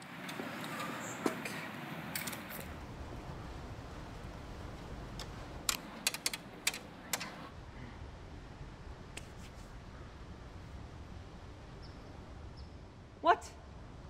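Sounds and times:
keypad buttons clicking: 5.7s - 7.4s.

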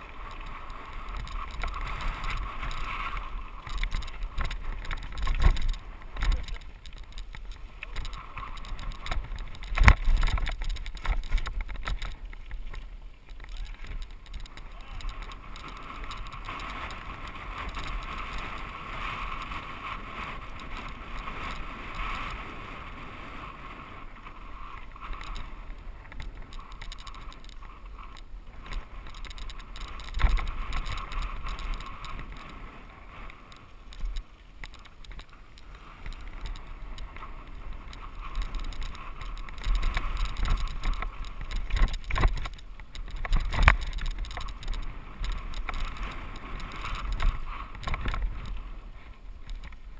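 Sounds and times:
bike tyre and frame noise: 0.0s - 49.9s
wind rumble on microphone: 0.0s - 49.9s
bike knocking on rough ground: 3.6s - 18.1s.

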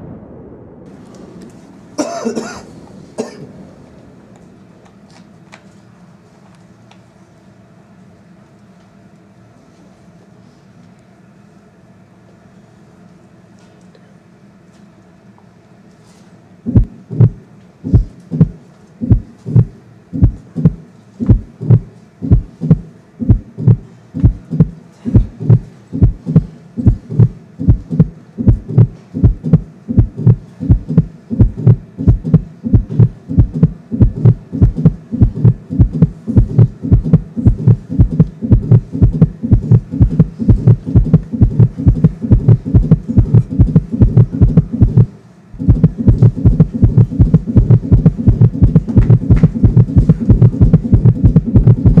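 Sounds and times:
low heavy thumping pulse: 0.0s - 2.0s, 16.7s - 52.0s.

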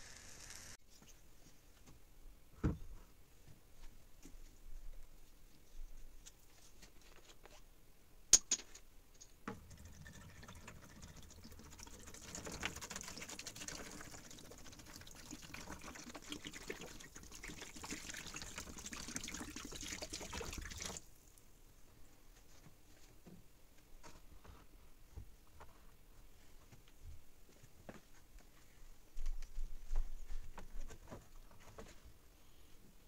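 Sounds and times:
liquid pouring into plastic tub: 9.5s - 21.1s.

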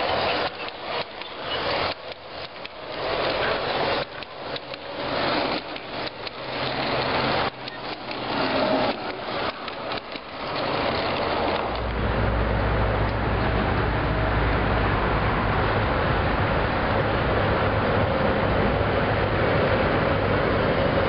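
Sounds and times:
metal wheels clattering on track: 0.0s - 12.0s.

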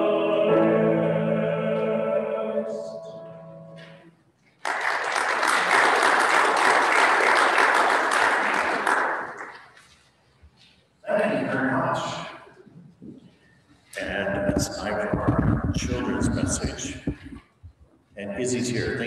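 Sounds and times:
two voices singing held note: 0.0s - 3.9s
congregation applauding: 4.6s - 9.8s.

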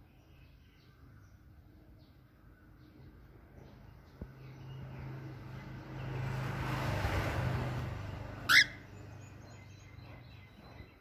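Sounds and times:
cockatiel shrill call: 8.5s - 8.8s.

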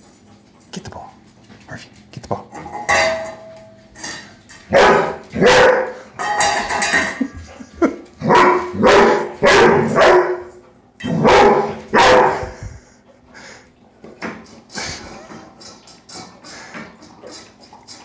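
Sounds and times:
dog barking: 4.7s - 6.0s, 8.3s - 10.5s, 11.2s - 12.5s.

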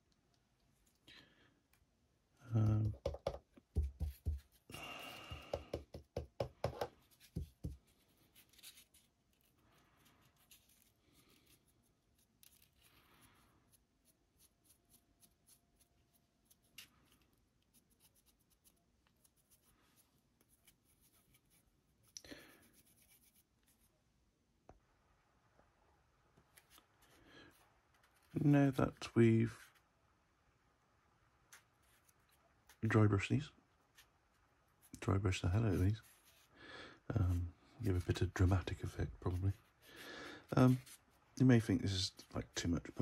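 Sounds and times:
paintbrush scratchy strokes: 7.0s - 23.9s, 33.8s - 36.5s, 37.1s - 43.0s.

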